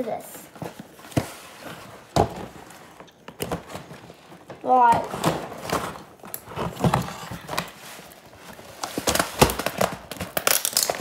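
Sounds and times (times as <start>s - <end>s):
packaging crackling and rustling: 0.5s - 11.0s.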